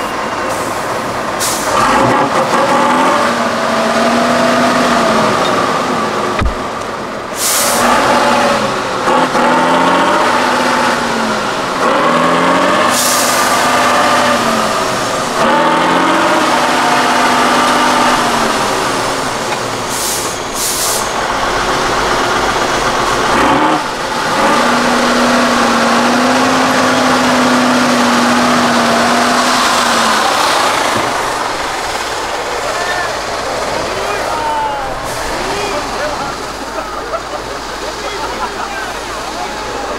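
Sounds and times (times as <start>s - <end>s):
truck diesel engine revving: 0.0s - 39.9s
air brake hisses: 1.4s - 1.8s, 7.4s - 7.8s, 13.0s - 13.5s, 19.8s - 21.2s.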